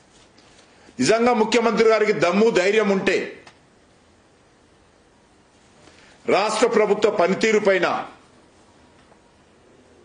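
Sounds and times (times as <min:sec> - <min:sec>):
faint room hiss: 0:00.0 - 0:10.0
man speaking: 0:01.0 - 0:03.5, 0:06.2 - 0:08.2.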